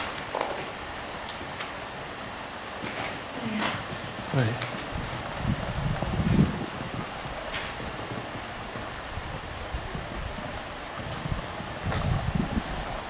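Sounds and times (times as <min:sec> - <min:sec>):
steady rain falling: 0:00.0 - 0:13.0.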